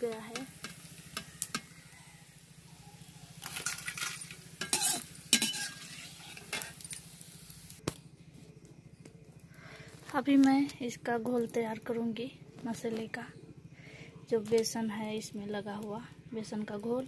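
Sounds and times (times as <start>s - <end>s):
light sizzle of frying oil: 0.0s - 17.0s
steel spatula scraping a pan: 3.4s - 7.0s.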